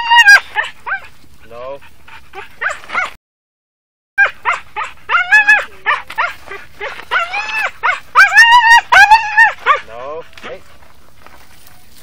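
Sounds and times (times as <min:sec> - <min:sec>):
animal whining and yelping: 0:00.0 - 0:01.1, 0:02.1 - 0:03.2, 0:04.2 - 0:10.4.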